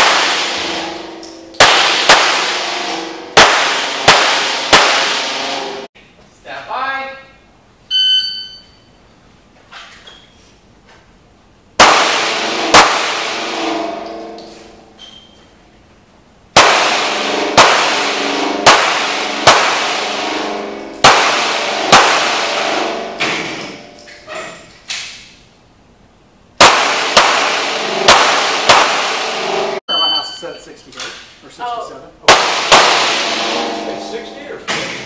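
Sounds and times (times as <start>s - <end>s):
handgun shots echoing indoors: 0.0s - 5.9s, 11.8s - 15.3s, 16.5s - 25.4s, 26.6s - 29.8s, 32.2s - 35.0s.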